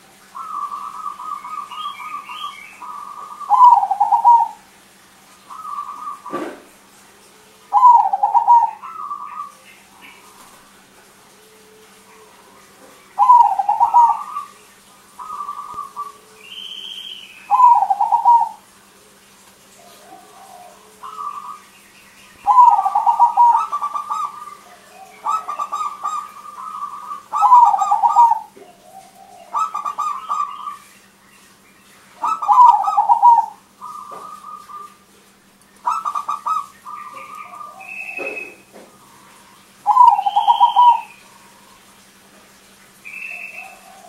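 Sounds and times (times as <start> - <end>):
dove cooing: 0.0 - 4.7, 5.4 - 21.7, 22.4 - 30.8, 32.2 - 42.0, 43.1 - 44.0.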